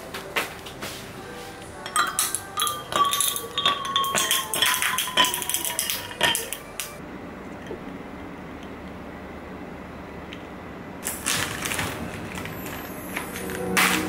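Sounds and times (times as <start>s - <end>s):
glass ringing: 1.8s - 7.0s
ice cubes clinking in glass: 1.9s - 6.9s.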